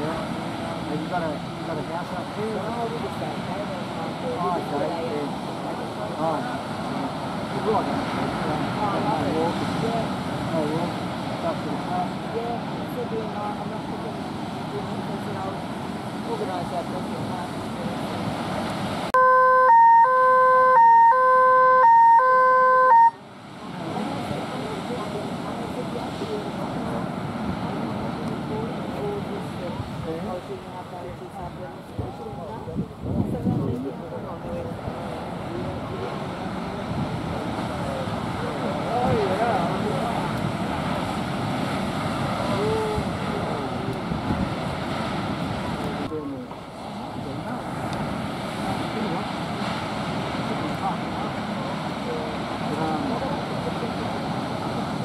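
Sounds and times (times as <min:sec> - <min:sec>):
surf breaking: 0:00.0 - 0:55.0
electronic two-tone siren: 0:19.2 - 0:23.2
wind buffeting microphone: 0:23.7 - 0:46.2.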